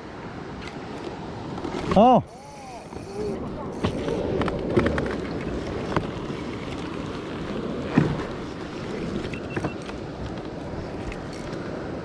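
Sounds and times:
wind rumbling on microphone: 0:00.0 - 0:12.0
sharp knocks on kayak: 0:07.9 - 0:08.3.

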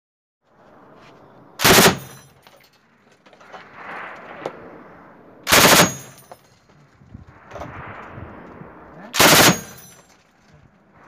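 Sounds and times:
machine gun reports: 0:01.6 - 0:02.0, 0:05.5 - 0:05.9, 0:09.2 - 0:09.7.

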